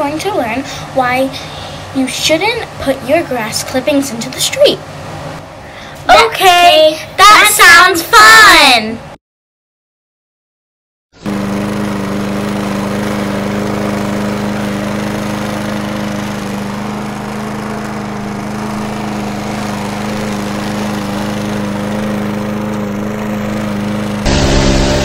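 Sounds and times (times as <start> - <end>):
lawn mower engine running: 11.2 - 25.0.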